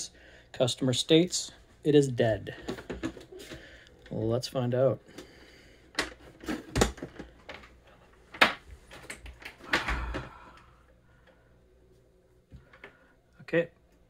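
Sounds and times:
plastic clicks and knocks: 5.9 - 7.7.

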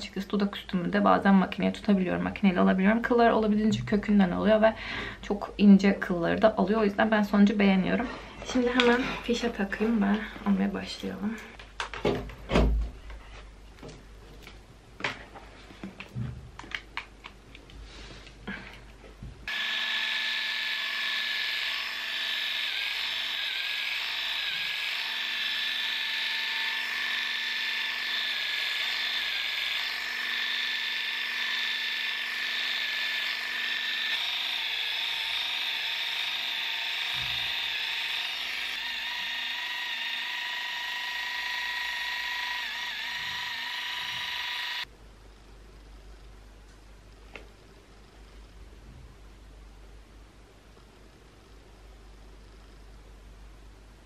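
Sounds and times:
electric epilator whining: 19.5 - 44.9.

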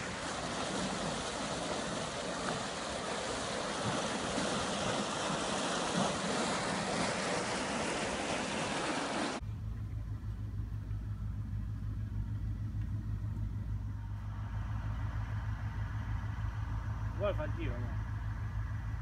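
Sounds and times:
water gushing and rushing: 0.0 - 9.4
low steady rumble: 0.0 - 19.0.

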